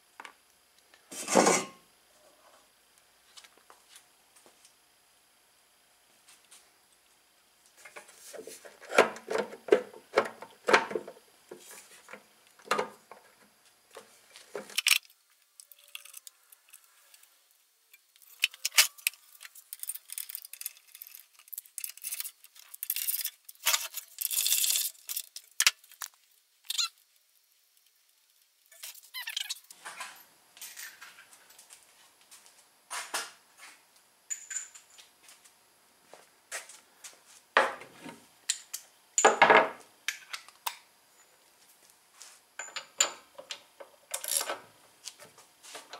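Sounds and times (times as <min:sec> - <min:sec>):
metal parts clinking on workbench: 0:18.3 - 0:25.4.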